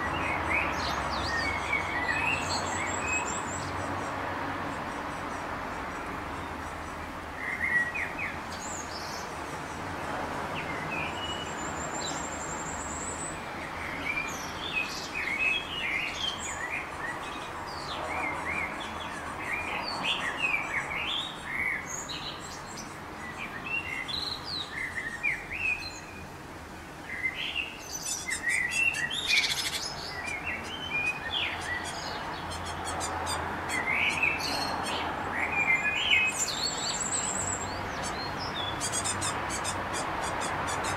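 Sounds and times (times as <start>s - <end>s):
songbirds chirping: 0.0s - 40.9s.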